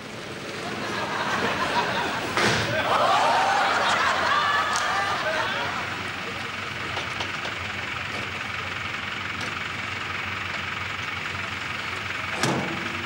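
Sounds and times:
rough unmuffled engine idle: 3.6 - 13.0.

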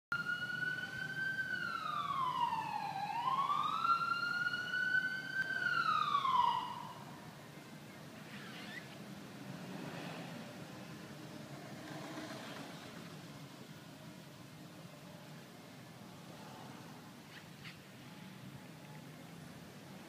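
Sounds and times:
wailing siren: 0.1 - 7.2
faint background noise: 0.1 - 20.0.

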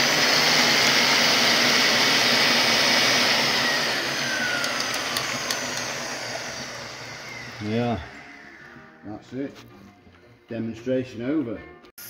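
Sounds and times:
electric drill and gear whirr: 0.0 - 9.1.

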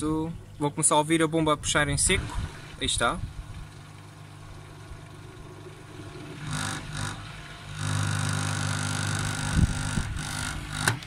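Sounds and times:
buzzing hum with thin whine: 0.0 - 11.0
drain pump sucking air: 1.8 - 11.0
plastic panel vibrating: 5.2 - 11.0.

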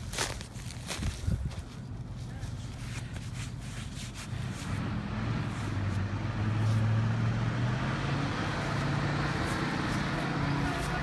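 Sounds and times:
truck engine under load: 4.4 - 11.0.

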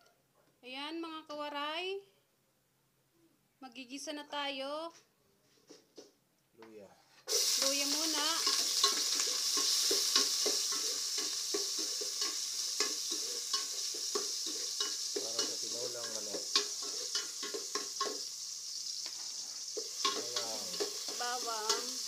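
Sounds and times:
food sizzling in a pot: 7.2 - 22.0.

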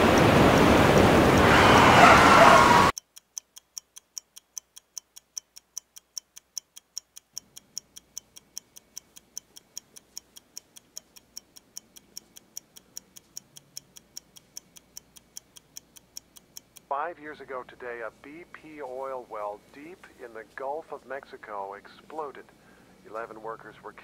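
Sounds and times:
wristwatch ticking: 2.6 - 20.7.

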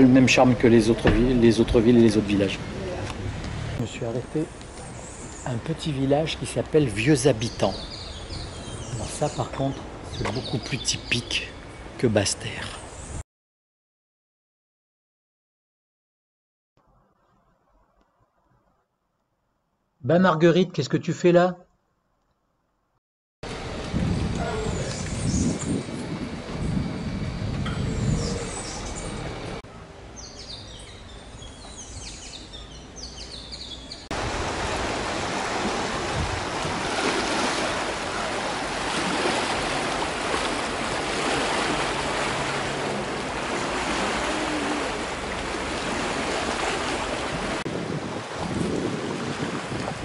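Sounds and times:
birds chirping: 0.0 - 13.2, 24.4 - 26.0, 26.6 - 34.1, 36.4 - 47.3
rushing surf or wind: 23.4 - 29.6, 34.1 - 50.0.

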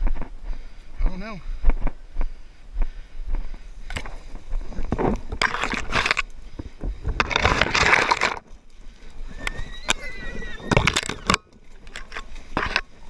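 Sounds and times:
branches rustling and snapping: 3.8 - 13.0.

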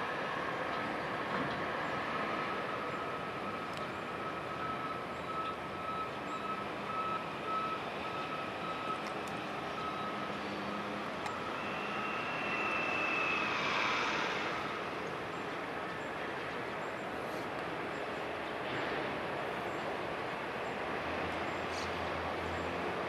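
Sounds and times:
high whine: 10.0 - 15.9
ship machinery rushing: 11.4 - 15.6.

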